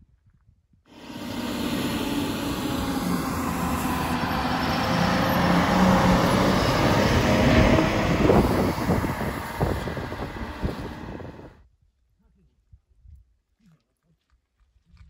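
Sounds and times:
diesel bus engine driving past: 0.9s - 11.6s.

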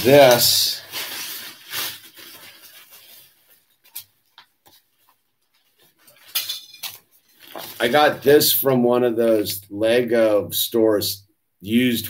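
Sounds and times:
plastic bag rustling: 0.0s - 8.6s
faint clicks and rubs: 2.9s - 7.8s.

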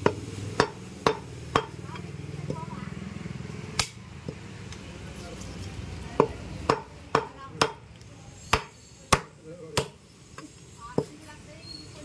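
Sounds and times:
cleaver chopping meat: 0.0s - 1.8s, 6.2s - 7.8s, 8.5s - 10.0s.

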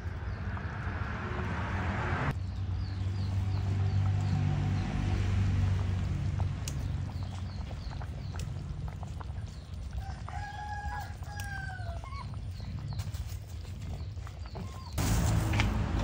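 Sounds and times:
low engine hum: 0.0s - 10.3s, 14.0s - 16.0s.

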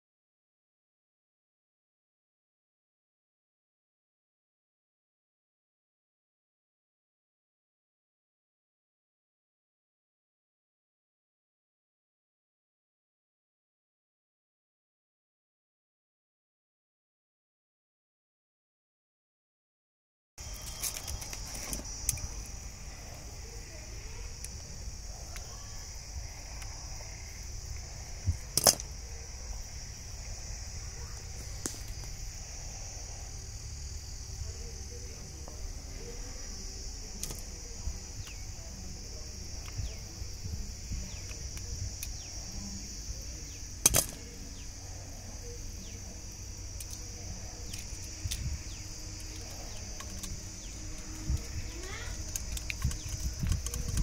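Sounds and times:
insects buzzing: 20.4s - 54.0s
clicks of wire handling: 28.5s - 28.9s, 43.8s - 44.2s
pliers cutting wire: 43.8s - 44.2s.

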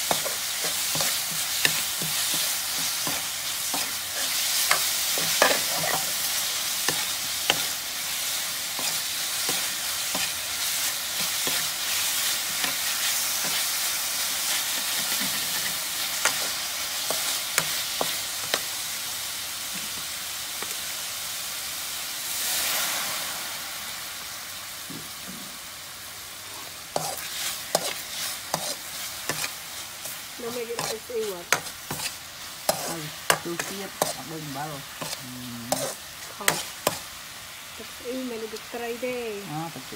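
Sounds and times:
meat sizzling in a wok: 0.0s - 39.9s
metal ladle scraping a pan: 0.1s - 7.8s.

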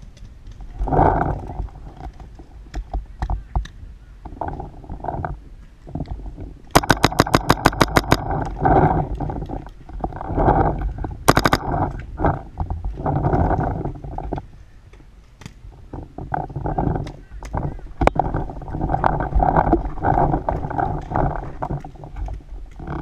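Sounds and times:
paintball marker shots: 6.8s - 8.2s.

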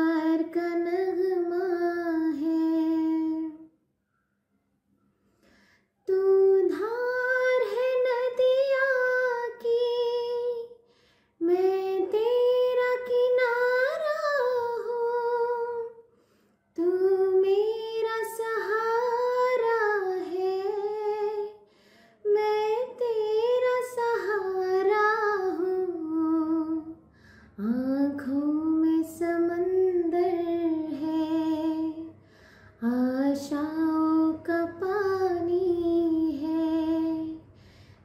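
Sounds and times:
woman singing unaccompanied: 0.0s - 3.7s, 6.1s - 10.8s, 11.4s - 16.0s, 16.8s - 21.6s, 22.2s - 27.0s, 27.6s - 32.2s, 32.8s - 37.5s
woman breathing: 5.2s - 6.0s, 10.8s - 11.4s, 16.0s - 16.7s, 21.6s - 22.3s, 27.0s - 27.6s, 32.2s - 32.8s, 37.4s - 38.0s.

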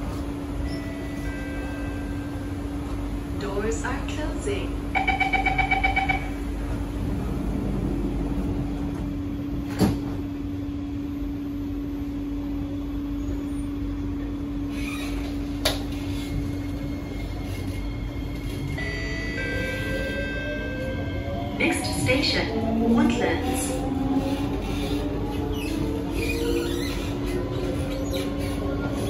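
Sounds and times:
train cabin hum: 0.0s - 29.0s
sliding doors shutting: 6.6s - 10.3s.

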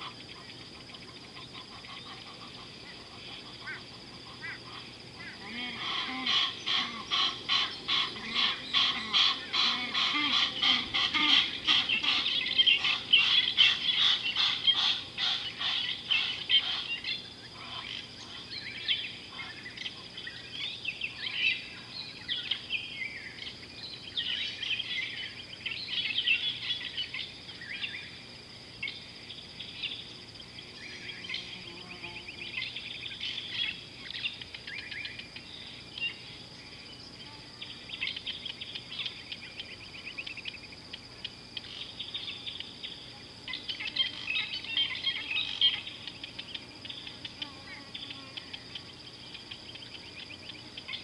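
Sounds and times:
birds calling: 0.0s - 28.2s.

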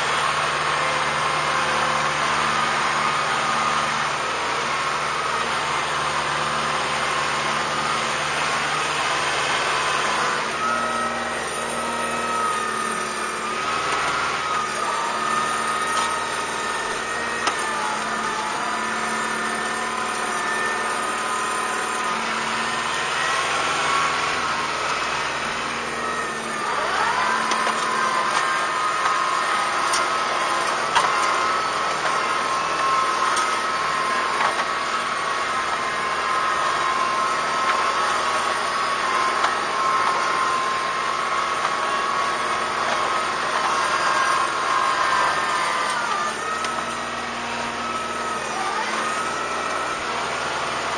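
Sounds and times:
tractor diesel engine running: 0.0s - 50.9s.

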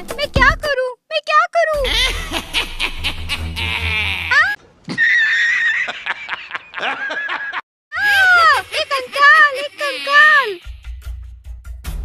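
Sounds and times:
man laughing loudly: 1.8s - 10.4s
wavering cartoonish voice: 8.0s - 10.6s.

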